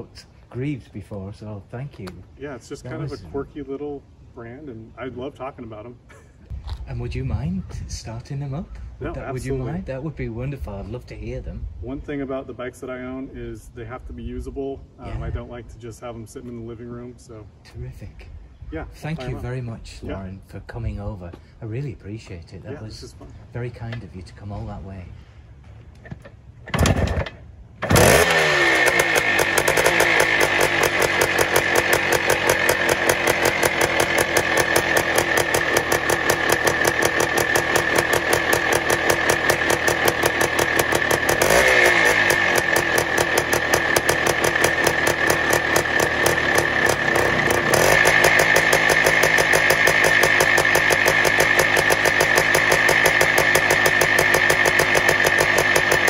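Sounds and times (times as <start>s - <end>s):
motorcycle engine revving: 26.8s - 56.0s.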